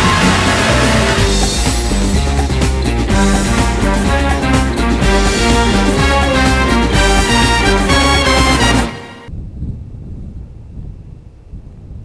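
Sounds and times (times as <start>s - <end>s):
loud soundtrack music: 0.0s - 9.3s.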